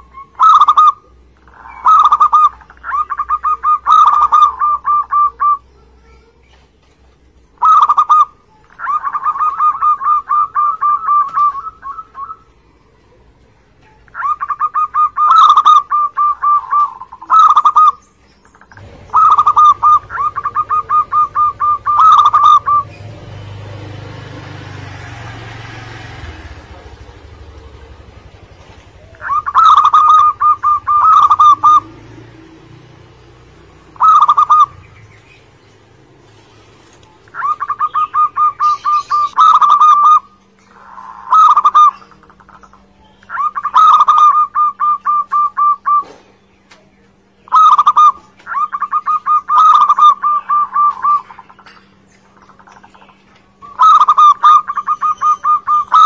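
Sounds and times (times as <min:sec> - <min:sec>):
dove cooing: 0:00.0 - 0:06.4, 0:07.5 - 0:46.4, 0:47.4 - 0:56.0.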